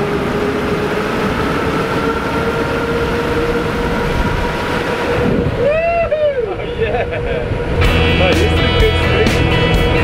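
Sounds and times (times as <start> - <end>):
electric boat motor whine: 0.0 - 5.7
wind and water rumble: 0.0 - 10.0.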